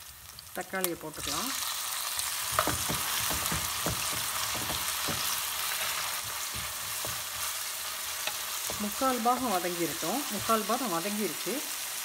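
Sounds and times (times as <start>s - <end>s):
vegetables sizzling in hot oil: 0.0s - 12.0s
wooden spatula scraping a pan: 2.5s - 10.7s.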